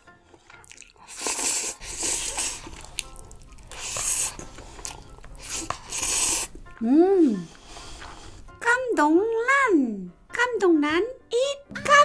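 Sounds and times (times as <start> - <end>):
loud noodle slurping: 0.6 - 6.6.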